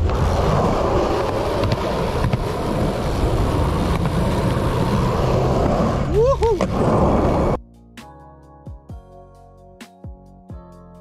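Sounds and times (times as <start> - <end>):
wheels rolling on concrete: 0.0 - 7.6.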